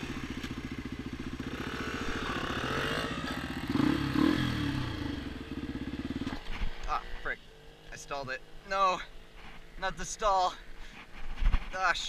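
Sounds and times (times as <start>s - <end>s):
dirt bike engines idling: 0.0s - 12.0s
engine revving hard: 1.4s - 5.3s.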